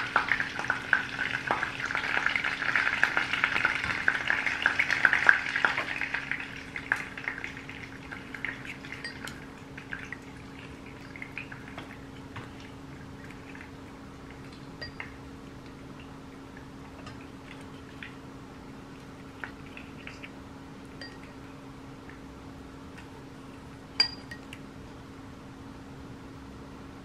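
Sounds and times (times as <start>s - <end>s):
steady low hum: 0.0s - 27.0s
chopsticks clinking on bowl and rack: 9.0s - 9.5s, 24.0s - 24.6s.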